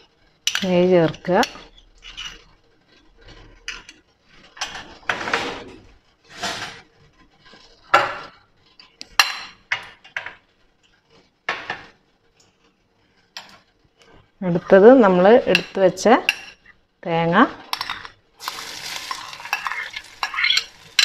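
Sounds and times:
spoon clinking and scraping: 17.7 - 21.0.

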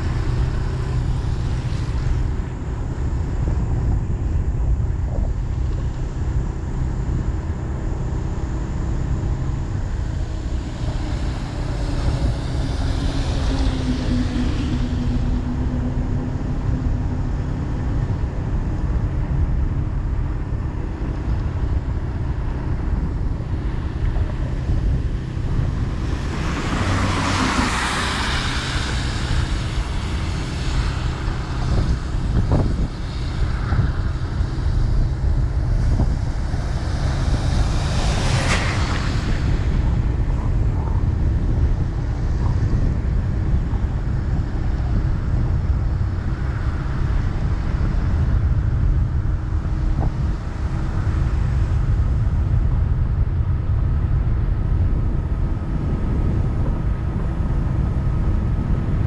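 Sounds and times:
vehicle rumbling along a road: 0.0 - 59.0.

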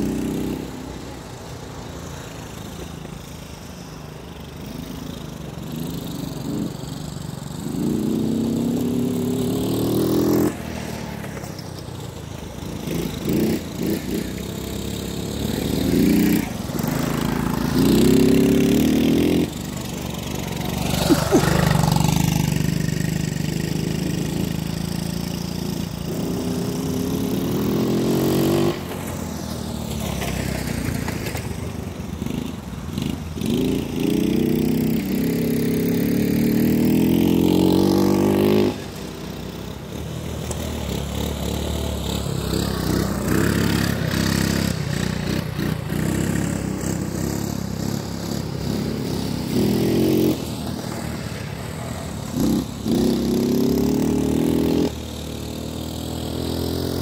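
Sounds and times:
small engines revving: 0.0 - 57.0.

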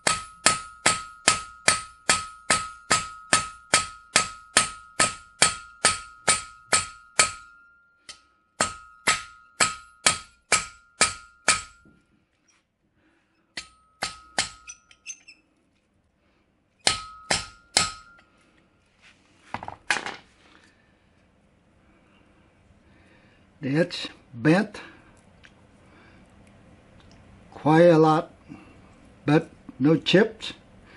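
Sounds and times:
hammer clanging on steel blade: 0.0 - 12.0, 13.5 - 15.4, 16.8 - 18.3.

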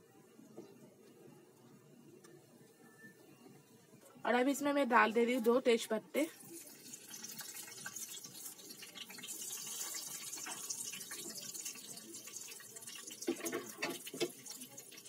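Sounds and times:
spices sizzling in hot oil: 5.2 - 15.0.

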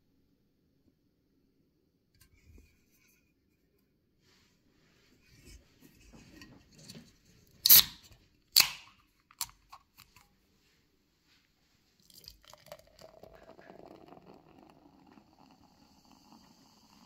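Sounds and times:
can opening crack and hiss: 7.6 - 8.0, 8.6 - 10.1.

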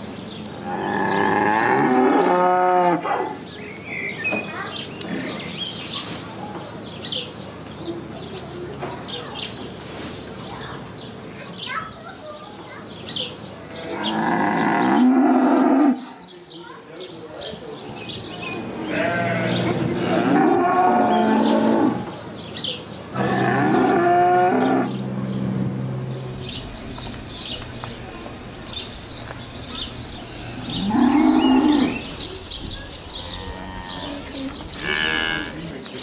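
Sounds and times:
cattle mooing: 13.8 - 16.0, 18.8 - 22.2, 23.2 - 25.2, 30.3 - 32.2, 33.4 - 35.8.

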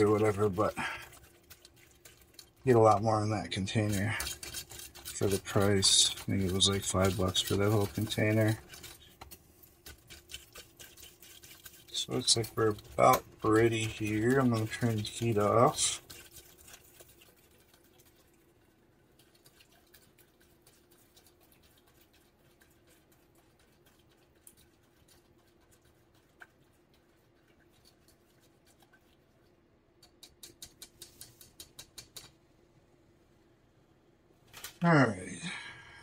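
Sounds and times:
faint steady hum: 0.0 - 36.0
spoon scraping small saucepan: 2.7 - 16.8.

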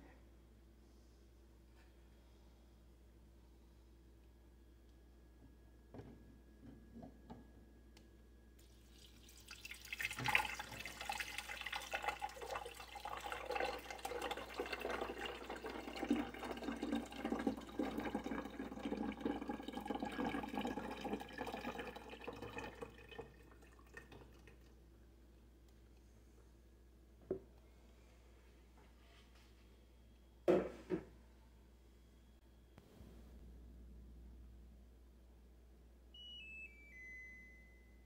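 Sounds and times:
water pouring into a tank: 8.6 - 24.7.

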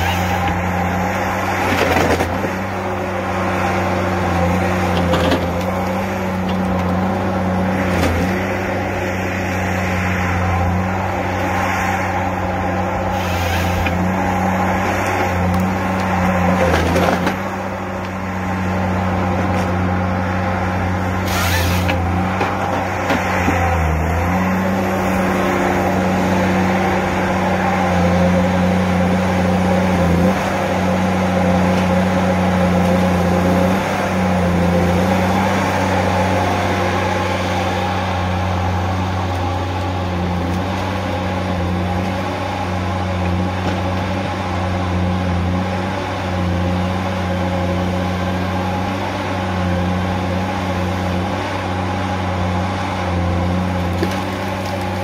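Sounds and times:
diesel engine running: 0.0 - 55.0
harvester head noisy bursts: 21.2 - 22.6.

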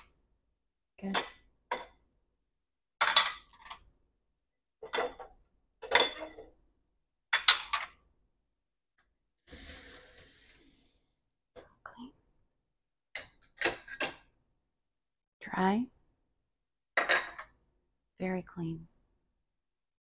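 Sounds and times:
ceramic plates clattering on stone: 4.8 - 6.5, 17.0 - 17.5.

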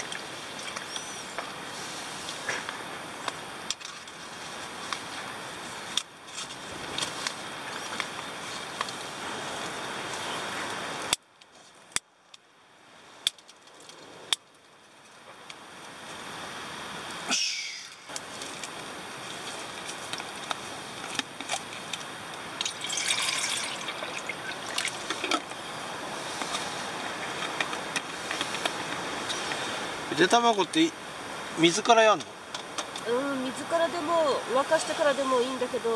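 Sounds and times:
water pouring into metal pot: 22.6 - 25.0.

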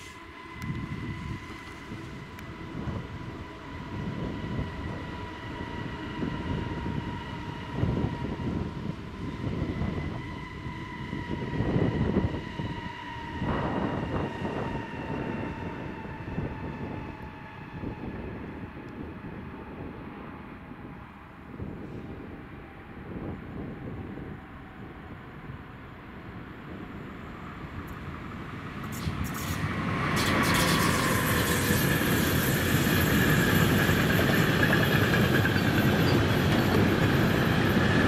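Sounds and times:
two-tone electric whine: 0.0 - 19.2
train low rumble: 0.0 - 38.0.

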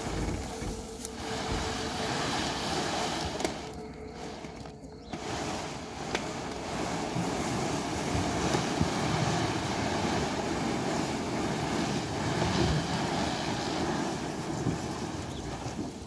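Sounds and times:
earth sliding off trailer: 0.0 - 16.0.

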